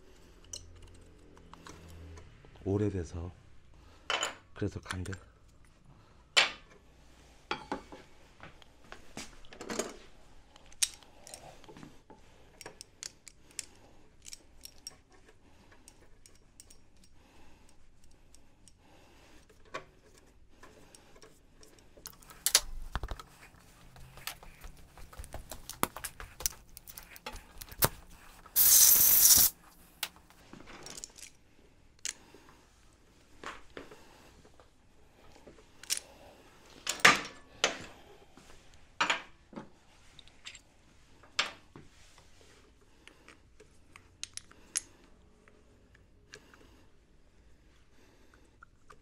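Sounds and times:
metal parts and tools clinking: 12.6s - 18.8s, 30.7s - 31.4s.

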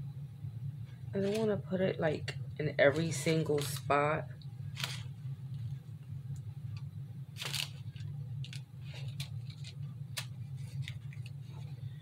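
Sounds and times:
steady low hum: 0.0s - 12.0s
clicks and rustles of hands handling decorations: 1.2s - 1.6s, 7.4s - 11.8s.

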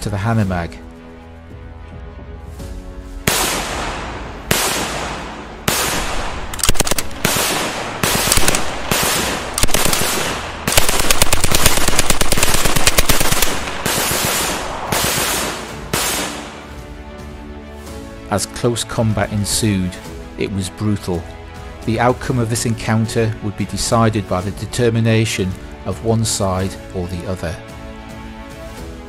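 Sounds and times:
heavy gunshots with echo: 3.2s - 16.7s
machine-gun bursts: 6.6s - 15.5s.

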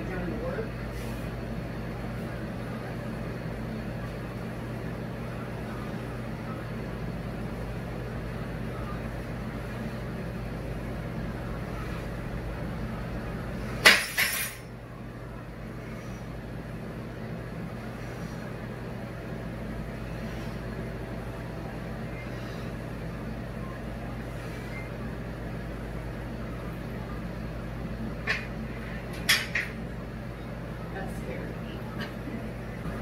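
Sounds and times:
low background hum: 0.0s - 33.0s.

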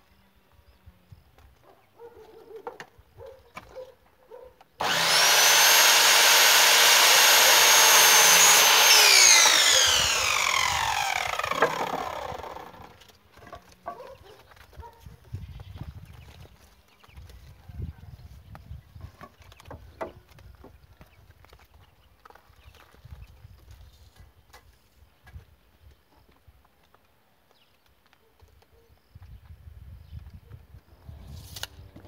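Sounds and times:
power saw cutting wood: 4.8s - 13.1s.

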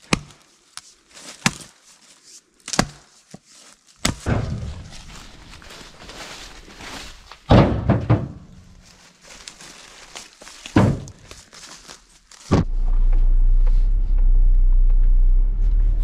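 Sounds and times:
firewood thunking into truck tray: 4.2s - 5.3s, 7.5s - 8.7s, 10.7s - 11.2s
steady low rumble: 4.3s - 7.3s, 12.5s - 16.0s
knocks: 7.5s - 8.6s.

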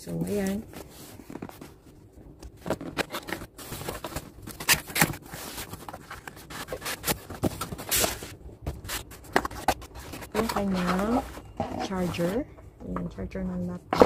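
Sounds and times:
cardboard scraping: 2.5s - 12.5s.

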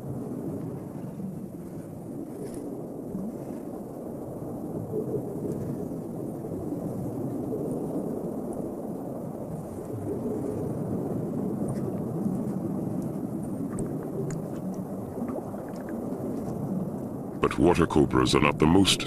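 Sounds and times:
low underwater rumble: 9.6s - 17.4s
faint ticks: 11.7s - 14.8s.

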